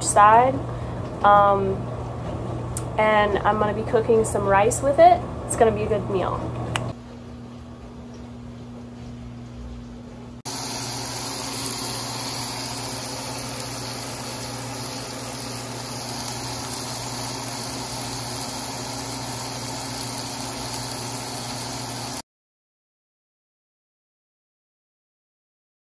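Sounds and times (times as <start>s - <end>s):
fish sizzling in pan: 10.5s - 22.2s.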